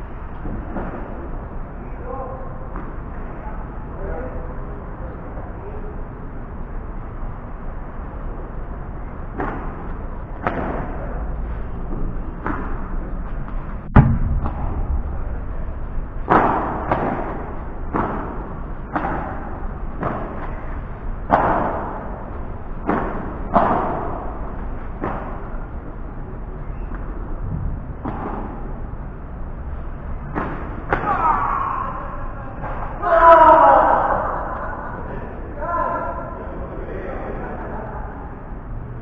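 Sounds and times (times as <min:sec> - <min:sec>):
low rumble: 0:11.0 - 0:30.9
ball bouncing off walls: 0:11.9 - 0:15.6, 0:16.2 - 0:25.7, 0:30.2 - 0:31.4.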